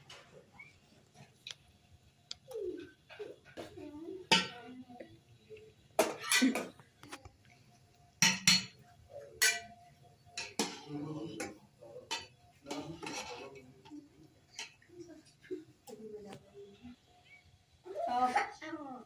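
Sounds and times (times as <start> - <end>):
utensils clinking on steel pot: 4.3 - 4.7, 8.2 - 14.8.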